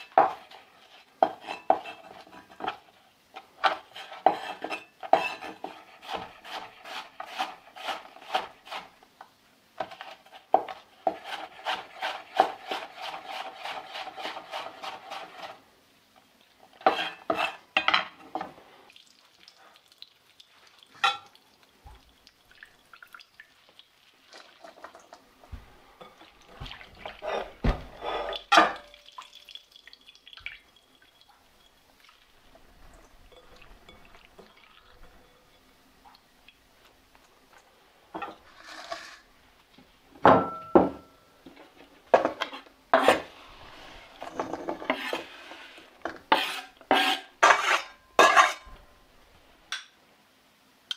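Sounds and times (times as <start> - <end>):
kitchen bowls knocking: 40.2 - 41.2.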